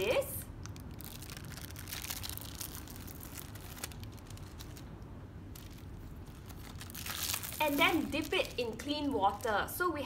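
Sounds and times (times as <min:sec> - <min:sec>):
plastic film crinkling: 0:00.4 - 0:10.0.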